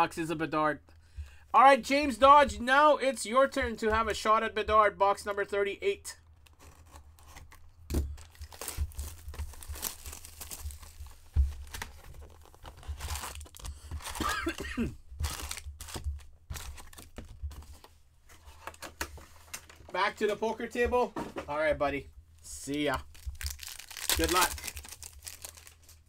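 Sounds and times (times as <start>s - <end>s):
wrappers tearing and crinkling: 8.2s - 14.6s, 15.2s - 17.2s, 23.0s - 26.0s.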